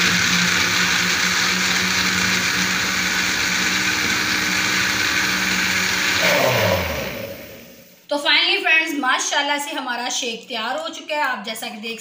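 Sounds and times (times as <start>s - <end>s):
blender motor whirring: 0.0s - 8.0s.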